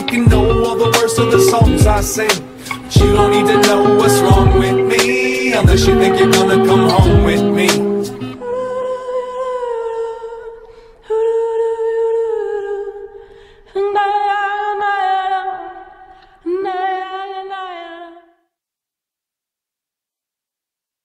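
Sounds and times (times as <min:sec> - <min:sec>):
voice holding wordless notes: 0:00.1 - 0:08.8.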